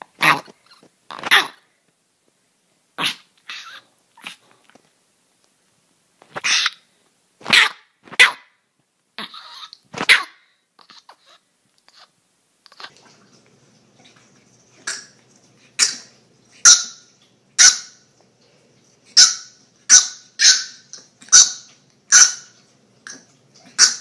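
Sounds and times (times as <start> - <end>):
puppy yapping: 7.4 - 8.5, 9.2 - 10.4, 15.8 - 18.0, 19.1 - 24.0.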